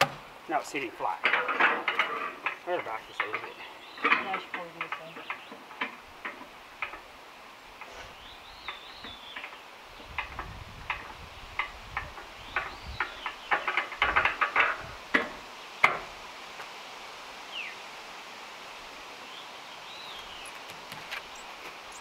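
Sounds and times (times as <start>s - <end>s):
metal knocks and clicks: 1.2s - 7.1s, 8.7s - 16.1s
bird chirping: 2.7s - 5.8s, 7.9s - 10.2s, 12.3s - 13.7s, 17.5s - 17.8s, 19.2s - 22.0s.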